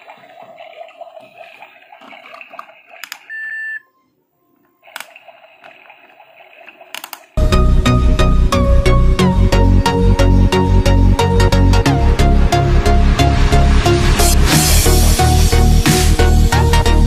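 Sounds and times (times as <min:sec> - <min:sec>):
short high beep: 0:03.3 - 0:04.0.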